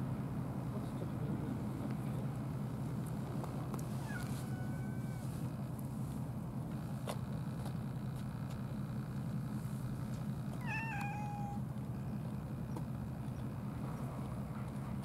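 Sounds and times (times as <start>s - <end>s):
cat meowing: 4.0s - 5.3s, 10.6s - 11.6s.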